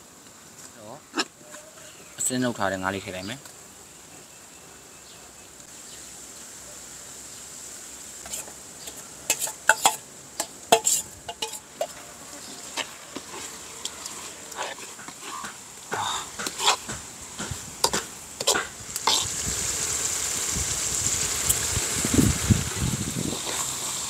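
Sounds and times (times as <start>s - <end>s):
low steady hiss: 0.0s - 24.0s
metal ladle clinking against wok: 8.8s - 12.0s.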